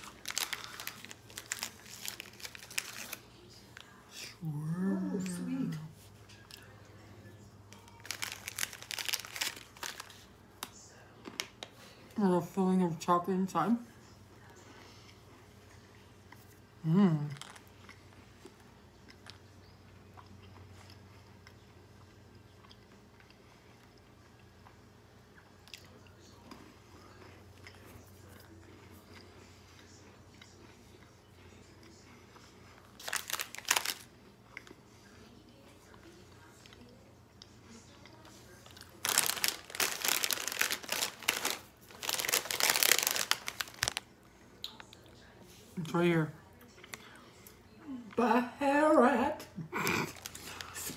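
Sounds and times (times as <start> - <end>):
plastic chip bag rustling: 0.0 - 3.4, 7.7 - 10.4, 33.0 - 34.1, 38.5 - 44.1, 50.0 - 50.9
cookie chewing: 0.0 - 12.0, 14.1 - 45.7, 46.4 - 48.2, 49.8 - 50.9
low steady hum: 0.0 - 50.9
soft clicks and crunches: 38.2 - 45.0.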